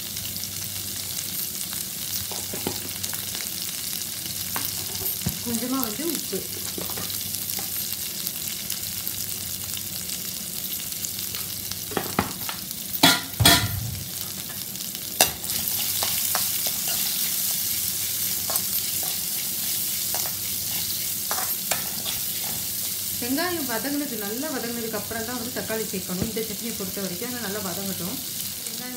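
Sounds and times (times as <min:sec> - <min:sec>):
food sizzling in hot oil: 0:00.0 - 0:28.9
spatula stirring: 0:15.2 - 0:23.0.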